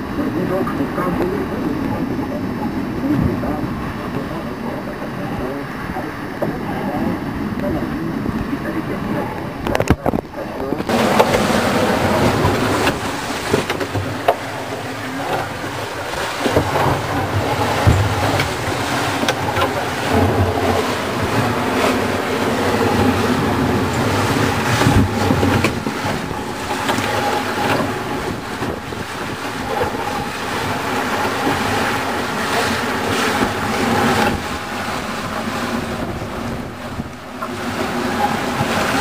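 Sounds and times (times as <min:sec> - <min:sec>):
rushing water: 0:00.0 - 0:39.0
water slapping: 0:00.0 - 0:39.0
wind: 0:00.0 - 0:39.0
spray hitting boat: 0:10.7 - 0:39.0.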